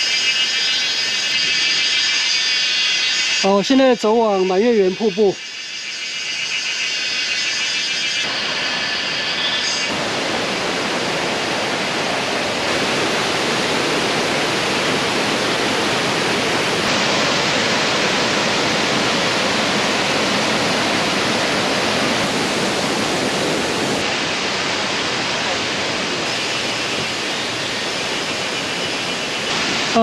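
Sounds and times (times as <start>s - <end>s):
stream rushing over boulders: 8.2s - 30.0s.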